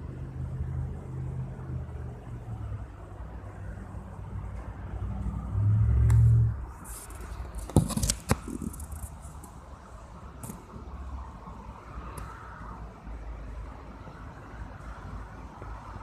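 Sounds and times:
road traffic rumble: 0.0s - 16.0s
sharp knocks and rustles: 6.8s - 9.5s.

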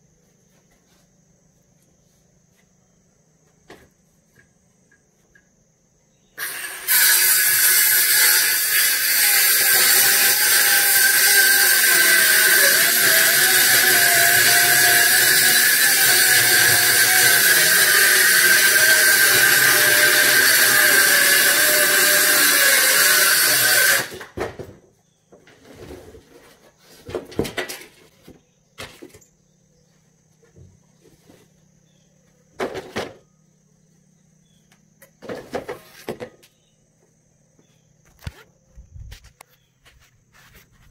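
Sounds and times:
circular saw cutting plywood: 6.4s - 24.4s.

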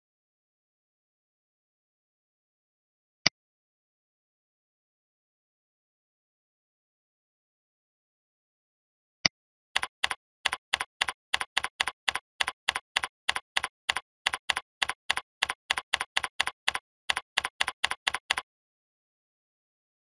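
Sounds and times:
keyboard keystrokes clicking: 9.8s - 18.5s.

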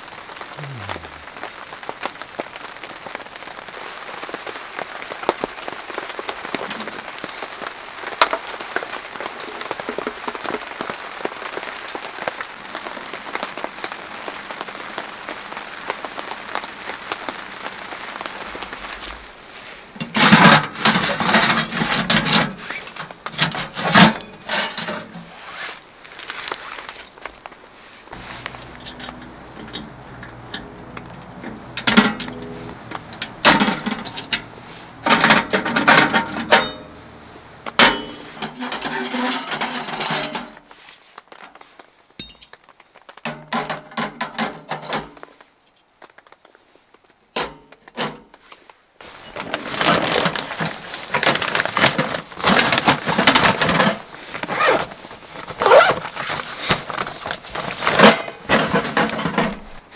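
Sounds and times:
metal clanks and scrapes of stove: 20.0s - 25.3s, 33.1s - 37.0s, 37.7s - 40.6s, 57.8s - 59.8s.

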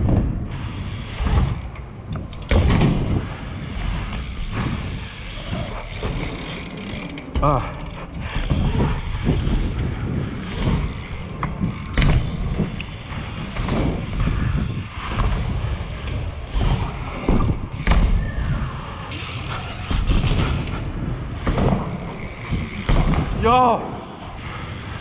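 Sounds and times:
bike tyres rolling: 0.0s - 25.0s
knocks and thuds from landings: 16.6s - 18.2s.

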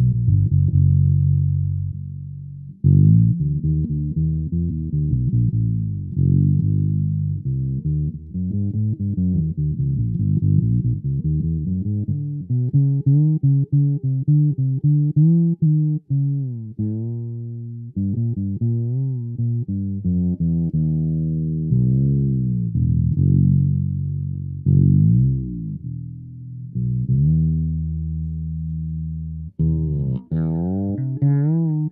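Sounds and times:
fretless electric bass plucked: 0.0s - 31.9s.

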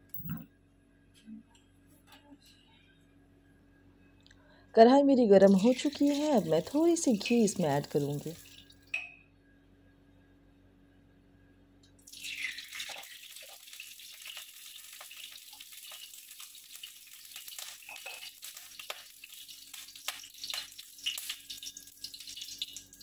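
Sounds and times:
ghee sizzling in a pan: 5.4s - 8.7s, 12.0s - 23.0s
crackles and pops: 11.9s - 23.0s.

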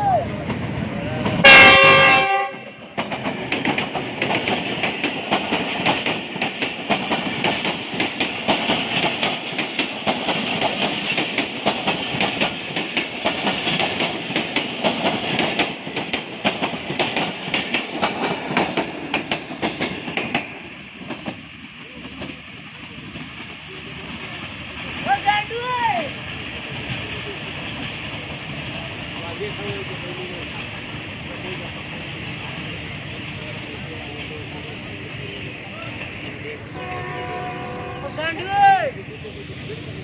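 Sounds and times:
train wheels clattering: 0.3s - 25.3s
locomotive horn blast: 1.4s - 2.8s, 36.8s - 38.2s.

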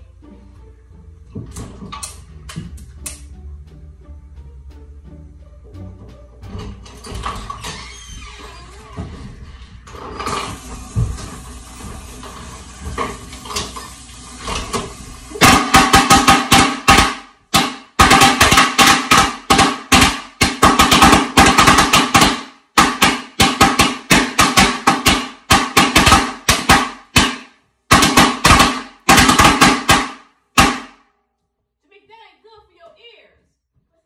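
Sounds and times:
firecrackers banging indoors: 6.5s - 31.1s.

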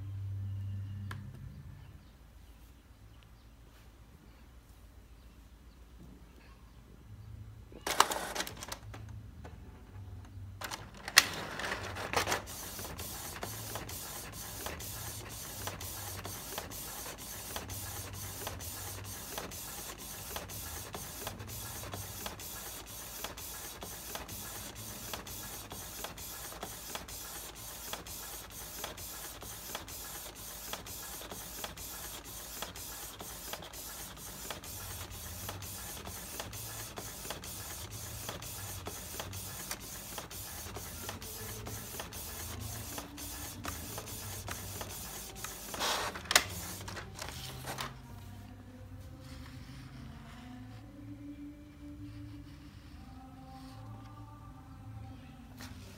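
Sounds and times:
printer ticking: 11.9s - 47.0s.

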